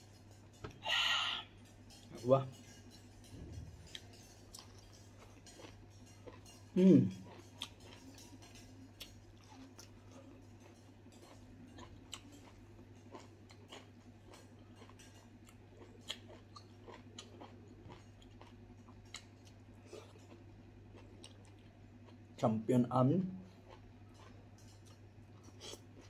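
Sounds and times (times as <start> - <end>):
low steady hum: 0.0 - 26.0
person chewing greens: 0.7 - 22.4, 23.5 - 26.0.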